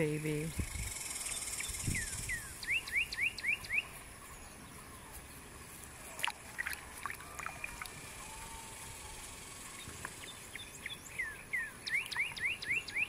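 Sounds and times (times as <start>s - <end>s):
songbird whistling notes: 0.9s - 4.8s, 9.8s - 13.0s.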